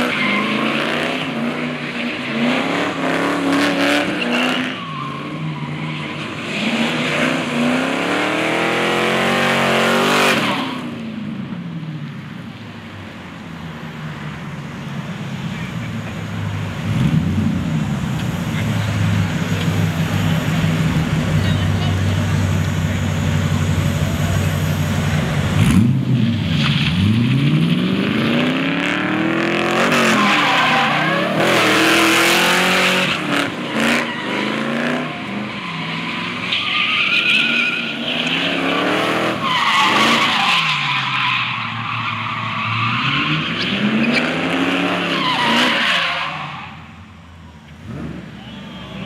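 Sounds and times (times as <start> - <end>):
car engine revving: 15.5 - 40.4
tyres screeching: 29.6 - 47.0.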